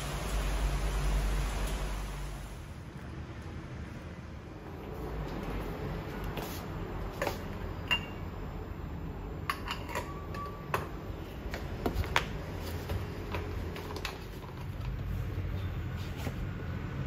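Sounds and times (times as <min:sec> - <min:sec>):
metal moka pot clinks: 0:09.5 - 0:10.8.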